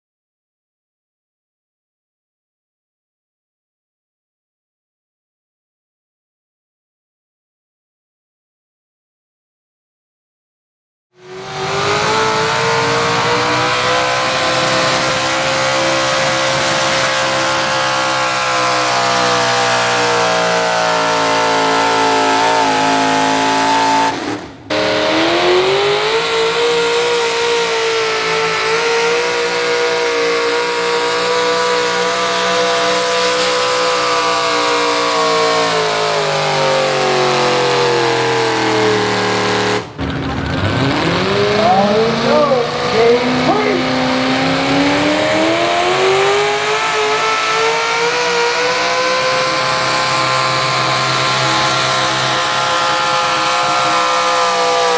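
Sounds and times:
tractor engine at full throttle: 0:11.2 - 0:54.9.

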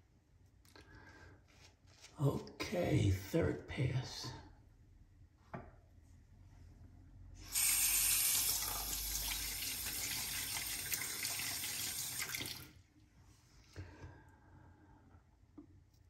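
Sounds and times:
tap water splashing into sink: 0:07.6 - 0:12.7.

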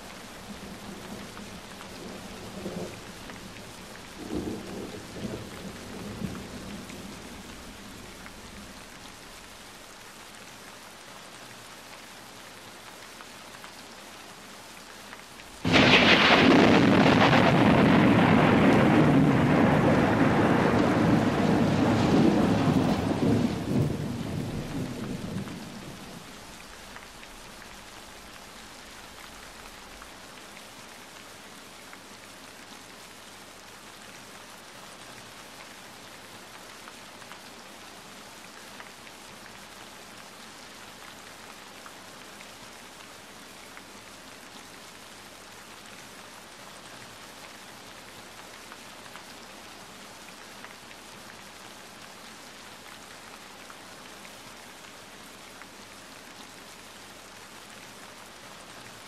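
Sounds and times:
rain falling: 0:00.0 - 0:59.0
loud thunderclap: 0:15.6 - 0:25.9
thunder rumbling: 0:15.6 - 0:26.3.

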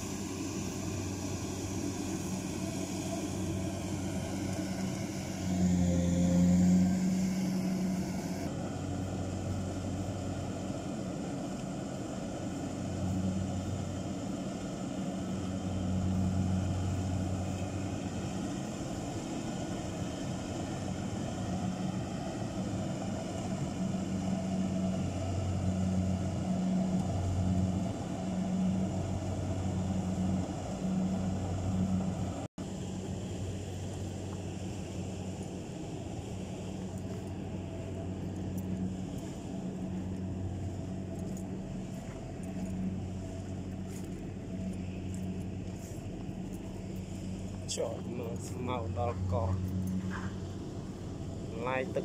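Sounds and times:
combine harvester engine running: 0:00.0 - 0:52.0.

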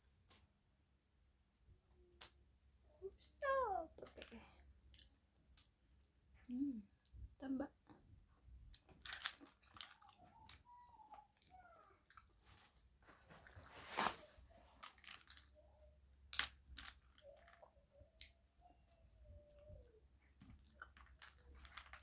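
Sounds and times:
wet chewing with shell crackles: 0:08.7 - 0:11.5.

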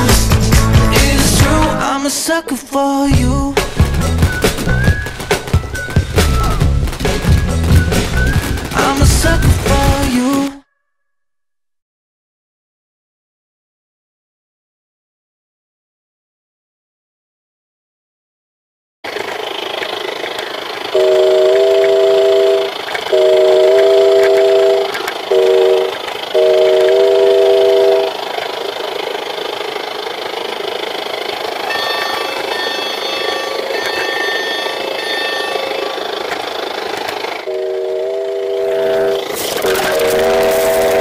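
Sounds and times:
model train running on track: 0:00.0 - 0:10.4, 0:19.1 - 0:41.0
model locomotive whistle: 0:08.0 - 0:08.6, 0:19.4 - 0:28.3, 0:31.6 - 0:41.0
faint high tones: 0:31.6 - 0:36.7.

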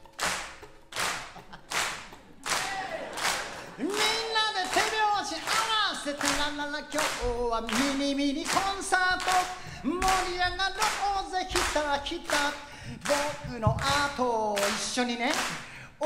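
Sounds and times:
audience clapping along: 0:00.0 - 0:15.8
man singing folk song: 0:03.8 - 0:16.0.

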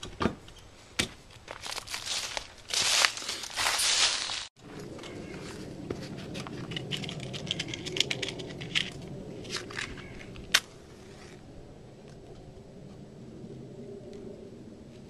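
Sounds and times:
kindling and paper rustling: 0:01.5 - 0:04.6.

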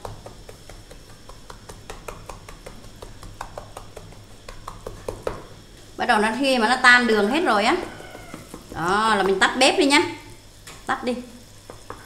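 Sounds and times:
syrup bubbling and popping: 0:00.0 - 0:06.0
steady low hum: 0:00.0 - 0:12.0.

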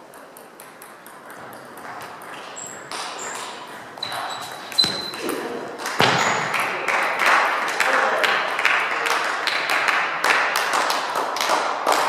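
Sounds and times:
spectators clapping: 0:05.7 - 0:12.0.

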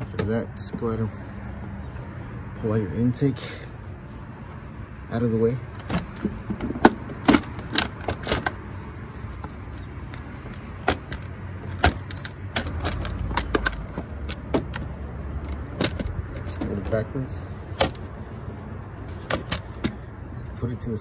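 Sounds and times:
rubber duct clicks and knocks: 0:05.8 - 0:08.6, 0:09.4 - 0:16.8, 0:19.2 - 0:20.0.

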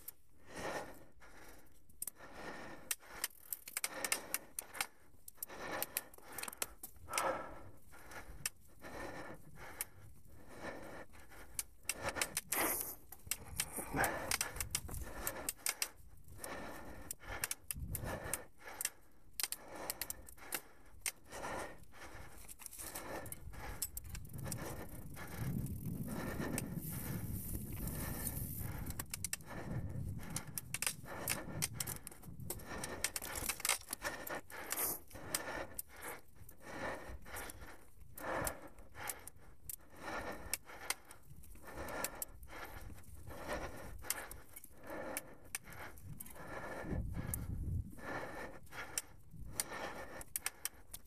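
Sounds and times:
mountain bike rattling and clicking: 0:22.2 - 0:36.1.

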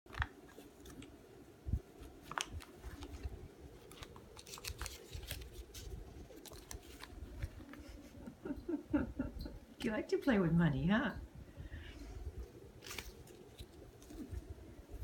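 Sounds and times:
paper bills rustling: 0:01.9 - 0:08.1, 0:12.5 - 0:14.6.

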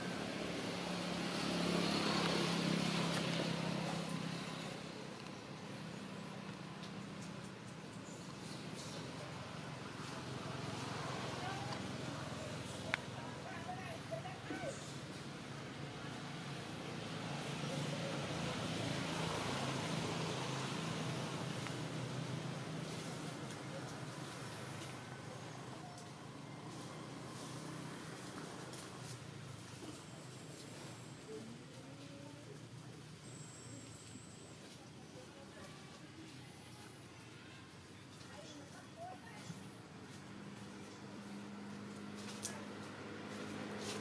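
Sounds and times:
vehicle driving past: 0:00.0 - 0:06.2
vehicle engine humming: 0:00.0 - 0:44.0.

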